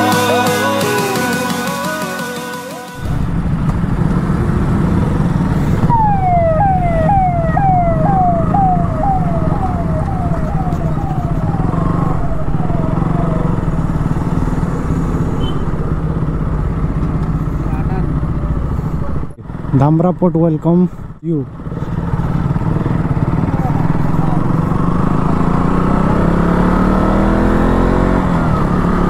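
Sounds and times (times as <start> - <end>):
road noise: 2.7 - 29.0
motorcycle engines: 2.9 - 29.0
electronic warning tone: 5.8 - 15.8.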